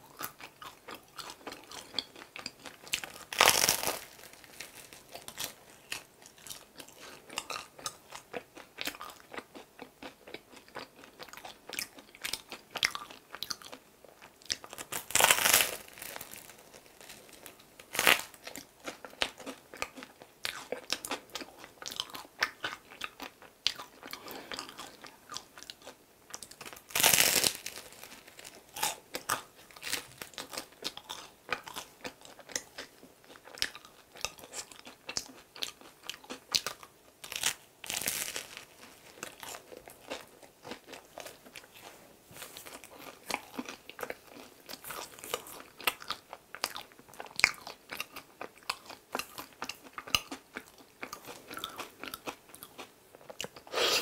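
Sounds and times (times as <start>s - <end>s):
person biting and chewing bread: 0.2s - 41.8s.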